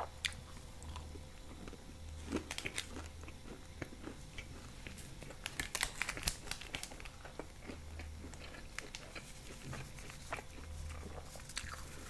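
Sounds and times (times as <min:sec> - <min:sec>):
plastic sachet crinkling: 0:04.9 - 0:07.3.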